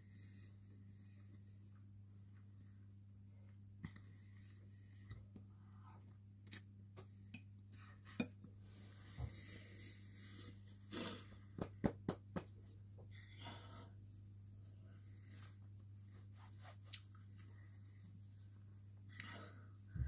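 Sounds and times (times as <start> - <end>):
low steady hum: 0.0 - 20.0
hands rubbing over clothing: 12.3 - 13.1, 14.0 - 19.1.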